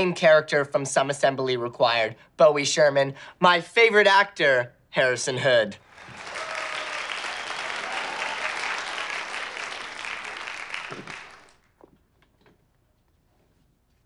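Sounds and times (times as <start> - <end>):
audience applause: 5.8 - 11.7.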